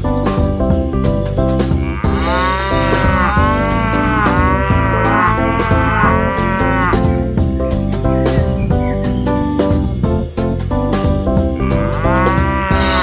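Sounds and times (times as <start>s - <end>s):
background music: 0.0s - 13.0s
cow mooing: 1.7s - 7.2s, 11.6s - 13.0s.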